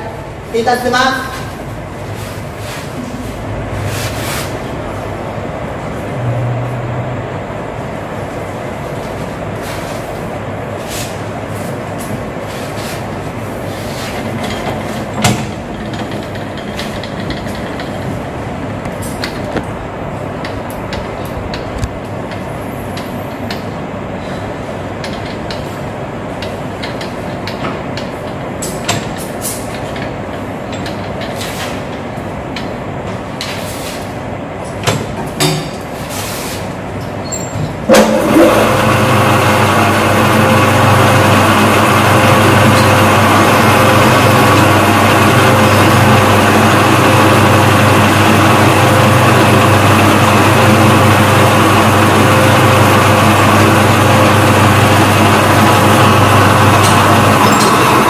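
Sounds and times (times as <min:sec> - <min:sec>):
lathe spindle geared hum: 0:37.3 - 0:58.0.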